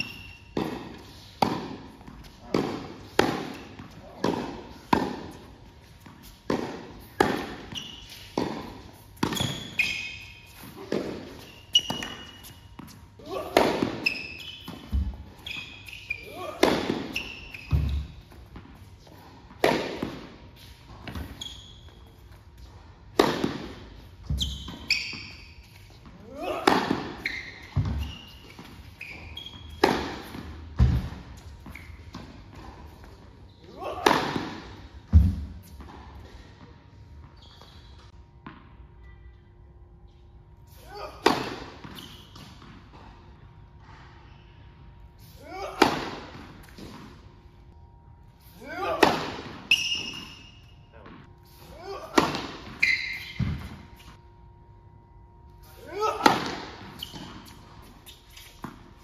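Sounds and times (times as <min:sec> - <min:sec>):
shoe squeak: 0:00.0 - 0:01.3, 0:07.4 - 0:18.3, 0:21.1 - 0:22.4, 0:24.2 - 0:30.3, 0:31.6 - 0:32.2, 0:37.2 - 0:38.1, 0:41.8 - 0:42.6, 0:49.7 - 0:51.0, 0:52.7 - 0:54.2, 0:56.9 - 0:58.7
tennis ball bouncing: 0:00.0 - 0:18.9, 0:19.5 - 0:21.4, 0:23.1 - 0:33.2, 0:34.0 - 0:36.0, 0:41.2 - 0:43.0, 0:52.1 - 0:53.8
racket hitting tennis ball: 0:00.0 - 0:21.4, 0:23.1 - 0:36.1, 0:41.0 - 0:43.0, 0:45.6 - 0:47.2, 0:48.7 - 0:54.2, 0:56.0 - 0:59.0
ball bouncing on court: 0:10.9 - 0:18.8, 0:26.4 - 0:33.2, 0:52.2 - 0:53.8.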